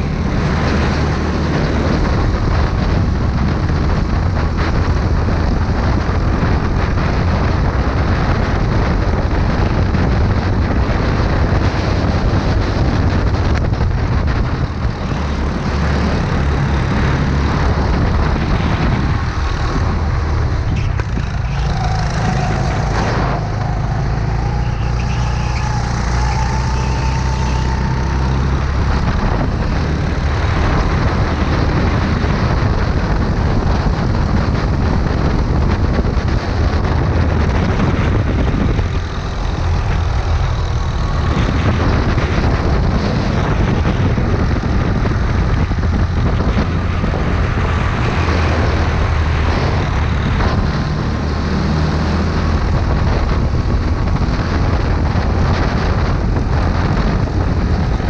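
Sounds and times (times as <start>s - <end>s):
go-kart engine running hard: 0.0s - 58.0s
second kart engine: 12.0s - 58.0s.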